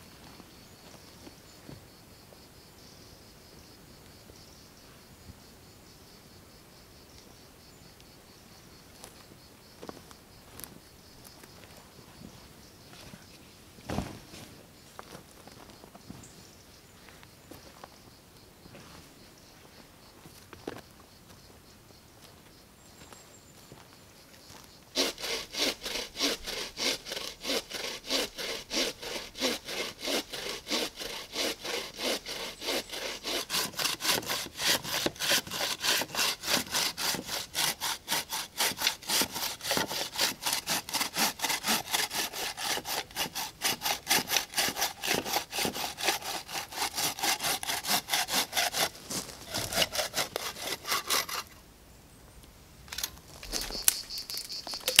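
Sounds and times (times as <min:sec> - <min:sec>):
bow saw cutting wood: 0:25.0 - 0:51.6.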